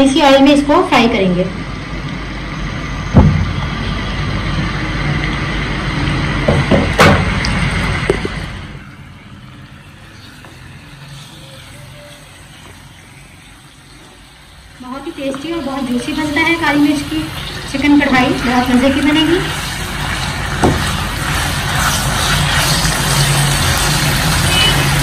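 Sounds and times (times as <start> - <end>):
chicken sizzling in hot oil: 3.0 - 25.0
sharp knock: 3.2 - 3.6.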